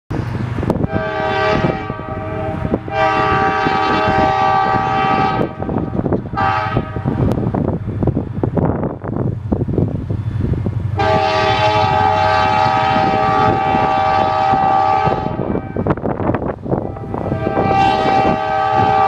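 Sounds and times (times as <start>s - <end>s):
locomotive air horn blasts: 0.8s - 7.3s, 11.0s - 16.0s, 16.7s - 19.0s.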